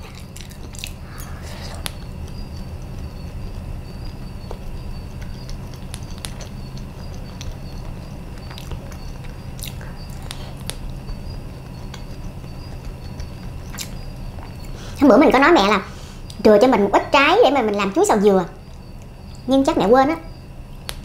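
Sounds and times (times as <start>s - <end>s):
close-up chewing: 0.0s - 15.0s
steady low hum: 0.0s - 21.0s.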